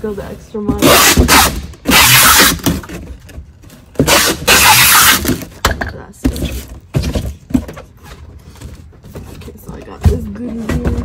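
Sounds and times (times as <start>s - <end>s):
cardboard box rasping: 0.6s - 5.5s.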